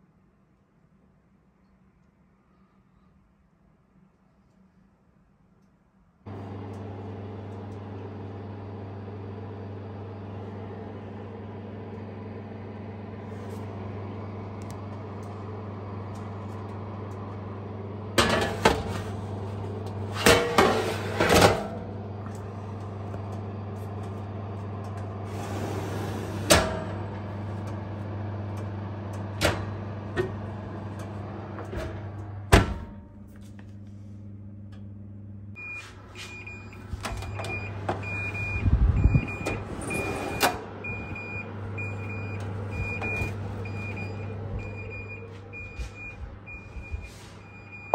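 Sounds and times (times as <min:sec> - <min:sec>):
electric oven humming: 0:06.2 - 0:47.9
oven door shutting: 0:18.1 - 0:33.1, 0:36.2 - 0:47.9.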